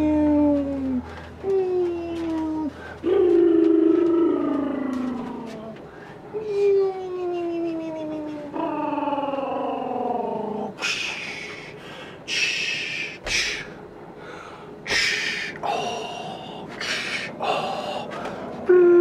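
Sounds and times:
voice falling in pitch: 0.0s - 5.8s, 6.4s - 10.9s, 18.7s - 19.0s.

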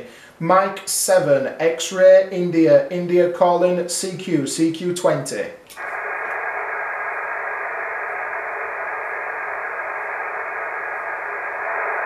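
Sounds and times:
radio static hiss: 5.7s - 12.0s.

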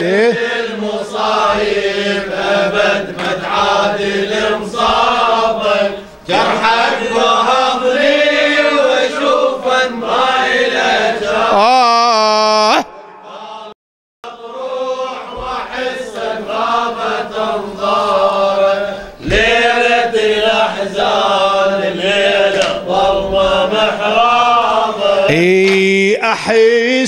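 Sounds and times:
voices chanting a lament: 0.0s - 27.0s
steady held tone: 11.6s - 13.8s.

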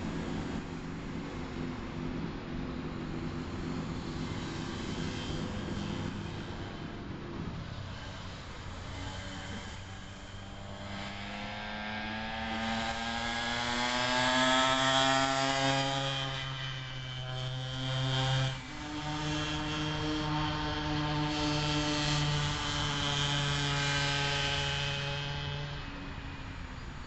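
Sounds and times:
two-stroke scooter engine revving: 10.6s - 25.8s.

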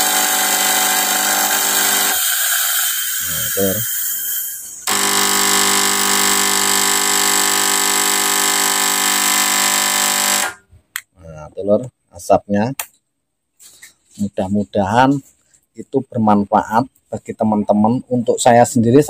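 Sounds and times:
pump buzzing: 0.0s - 3.8s, 4.8s - 10.7s.

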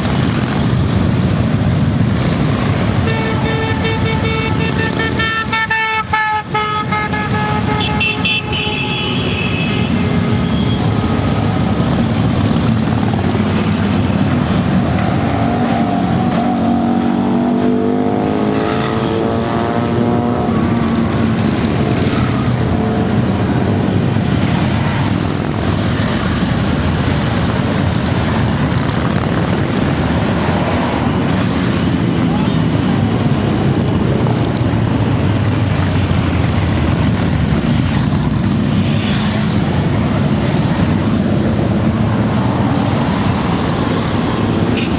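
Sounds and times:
motorcycle accelerating: 10.2s - 44.9s
motorcycles rumbling past: 10.4s - 44.9s.

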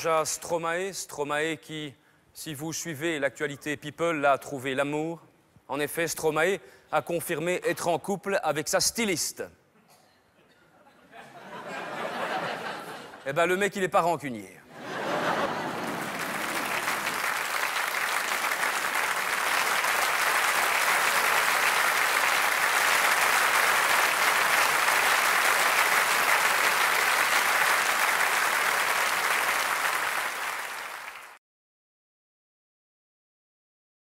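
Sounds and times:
audience applauding: 14.8s - 31.4s.

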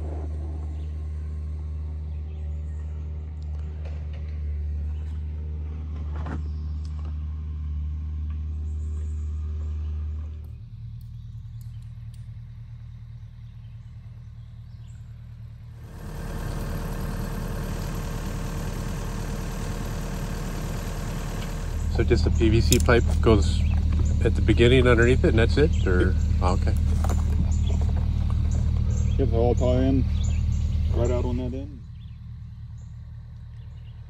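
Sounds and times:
engine idling: 12.2s - 34.0s.

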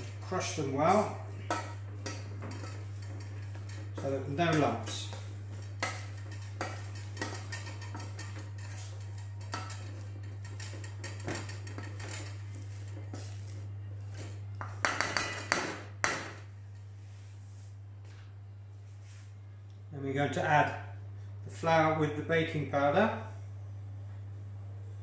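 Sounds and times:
metal clanks on pan: 1.4s - 12.4s, 14.6s - 16.4s
potato masher knocking in pan: 14.6s - 16.4s.

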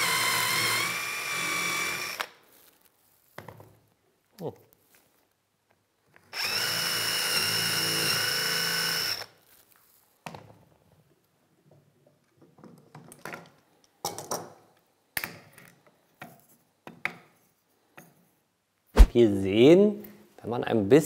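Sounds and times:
cordless drill whining: 0.0s - 2.3s, 6.3s - 9.4s.

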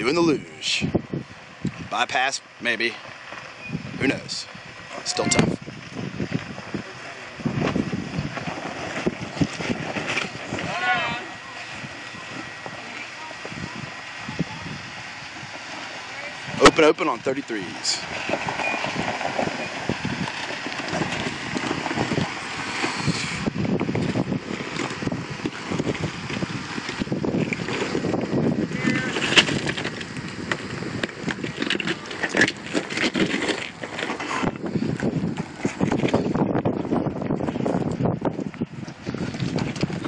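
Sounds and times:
engine running low: 0.0s - 40.0s
tyres crunching over rock: 18.0s - 38.0s.

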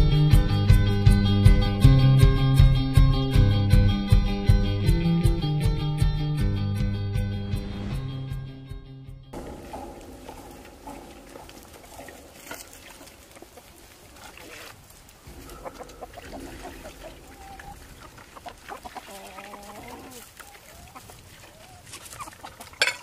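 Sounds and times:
feed pans knocking: 9.4s - 12.4s, 22.8s - 23.0s
chickens clucking: 9.4s - 23.0s.

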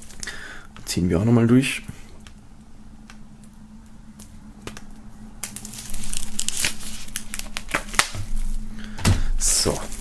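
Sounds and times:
plastic wrap crinkling and tearing: 5.4s - 8.7s, 9.5s - 10.0s.

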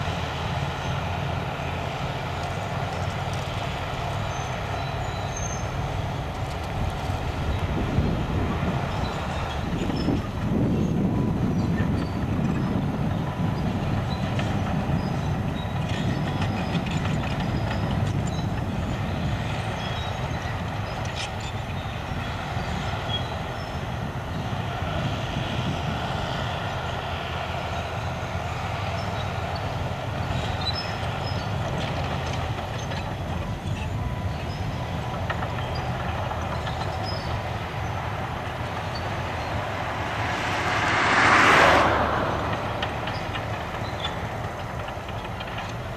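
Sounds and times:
dozer diesel engine under load: 0.0s - 45.9s
steel tracks clanking: 32.1s - 45.9s.

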